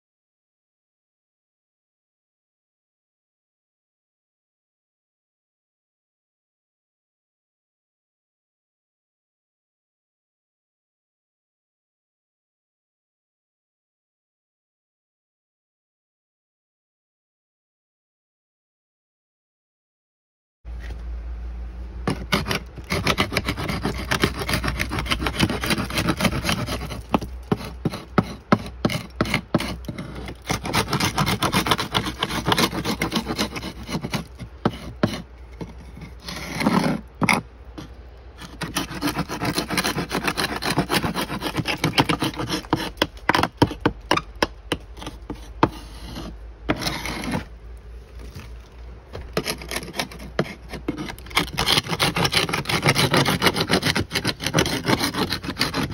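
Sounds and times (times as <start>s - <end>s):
paint scraper scraping wood: 22.0s - 47.5s, 49.2s - 55.9s.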